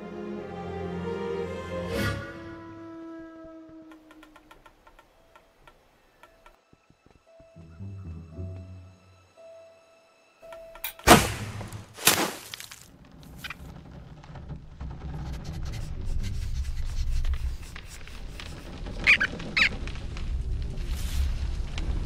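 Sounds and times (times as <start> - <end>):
short high squeaks: 18.0 - 19.8.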